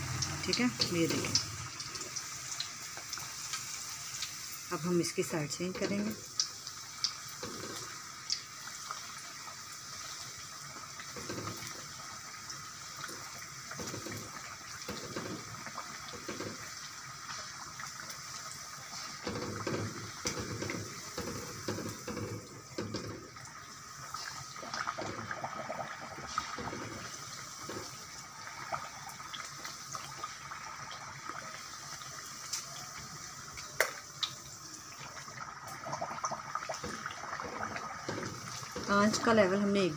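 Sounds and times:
dough sizzling in hot oil: 0.0s - 39.9s.

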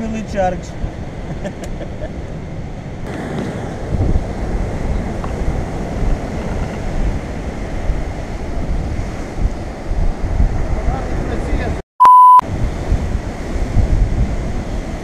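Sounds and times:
wind buffeting microphone: 0.0s - 11.8s, 12.4s - 15.0s
surf washing over rocks: 3.0s - 11.8s, 12.5s - 15.0s.

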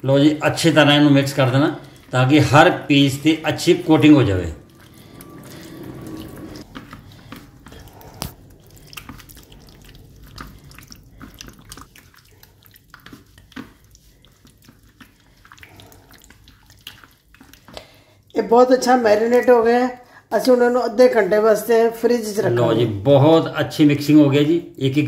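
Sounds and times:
hand squishing wet chicken: 0.0s - 5.6s, 6.6s - 19.6s.

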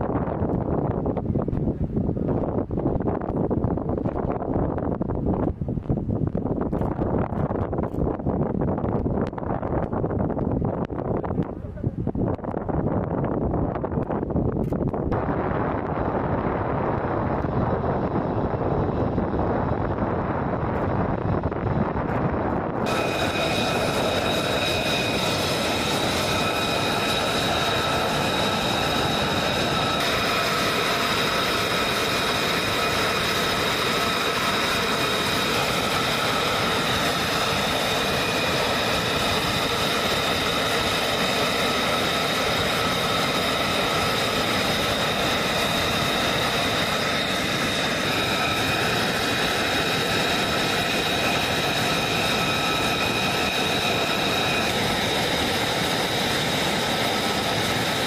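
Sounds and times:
jet engine idling: 14.7s - 58.0s
high-pitched jet whine: 15.1s - 58.0s.

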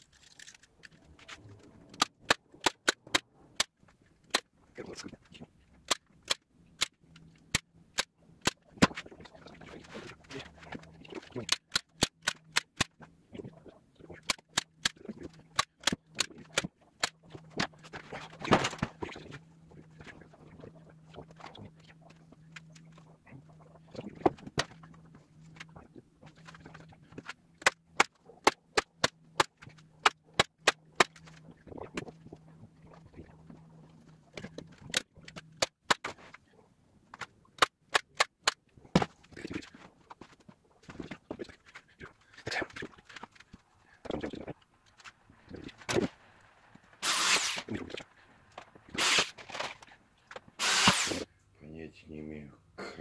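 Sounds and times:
staple gun snapping: 50.6s - 51.2s.

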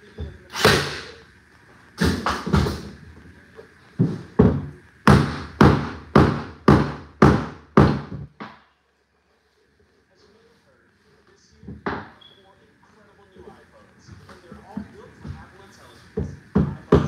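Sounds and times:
hammer blows on wooden floorboards: 2.0s - 3.0s, 4.0s - 8.6s, 14.2s - 17.0s.

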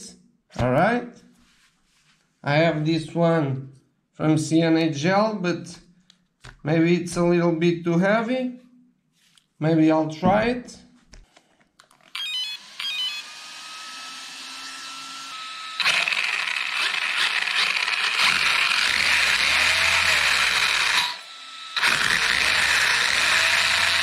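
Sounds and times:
electric motor whine: 12.2s - 24.0s.

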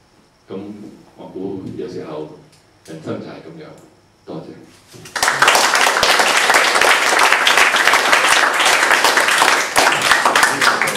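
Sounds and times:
audience applauding: 5.1s - 10.9s.

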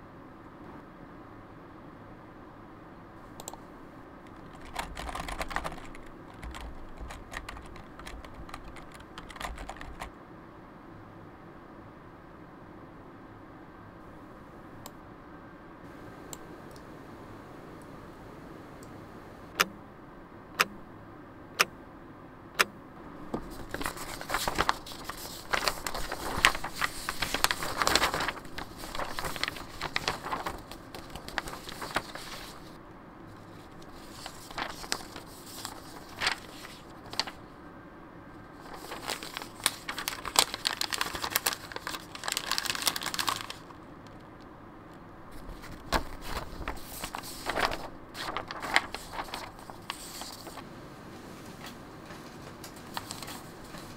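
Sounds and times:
paper rustling and crinkling: 4.3s - 10.1s, 23.3s - 37.5s, 38.5s - 44.2s, 45.3s - 50.7s, 51.3s - 53.9s.

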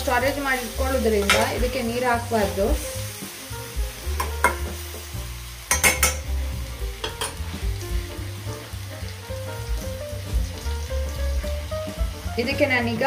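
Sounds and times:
vegetables sizzling in oil: 0.0s - 13.0s
spoon clinking against pan: 5.7s - 6.3s.

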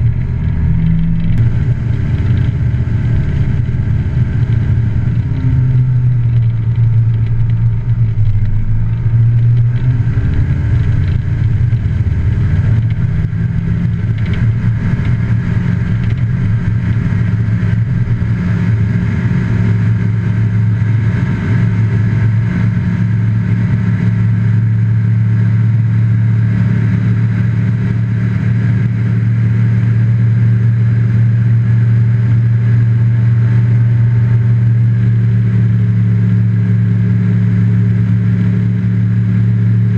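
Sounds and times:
aircraft engine droning: 0.0s - 26.1s
rough low rumbling: 0.0s - 39.9s.

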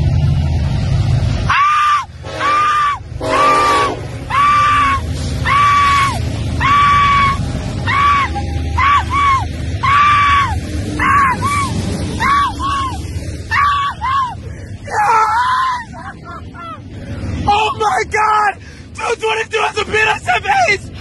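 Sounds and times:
low rumble: 0.0s - 1.5s, 2.1s - 19.0s
locomotive passing: 0.0s - 21.0s
person screaming excitedly: 1.5s - 3.0s, 4.3s - 16.8s.

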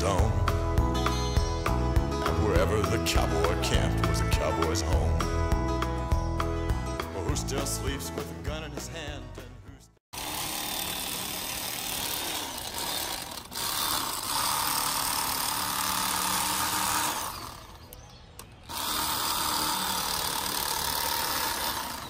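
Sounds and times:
electric fillet knife running: 10.2s - 17.8s, 18.7s - 22.0s.

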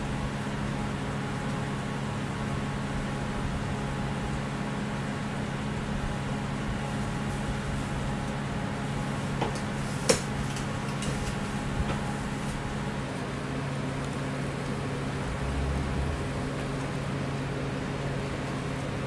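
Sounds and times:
kitchen equipment humming: 5.5s - 13.2s.

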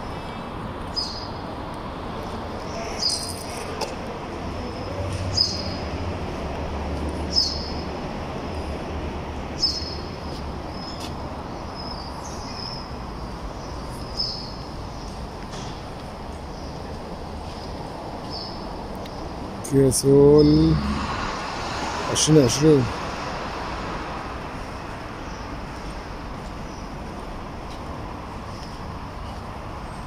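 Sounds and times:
small bird chirping: 3.0s - 3.6s.

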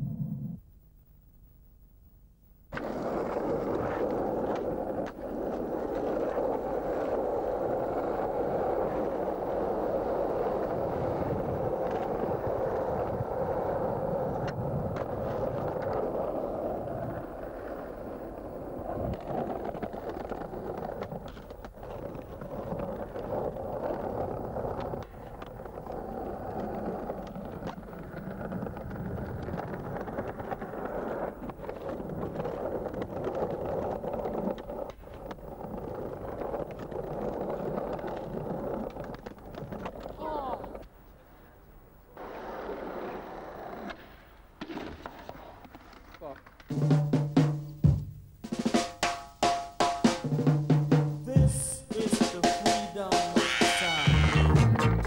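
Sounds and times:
skateboard clacking on ground: 2.7s - 41.0s
skateboard wheels rolling: 2.7s - 55.0s.

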